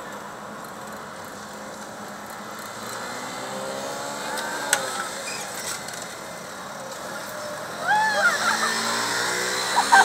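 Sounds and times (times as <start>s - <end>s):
motor vehicle passing: 7.8s - 10.0s.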